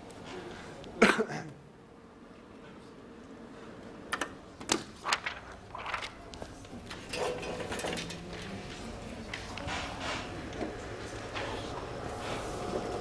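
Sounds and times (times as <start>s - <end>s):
steady low hum: 0.0s - 13.0s
rustling and light clattering: 4.9s - 12.6s.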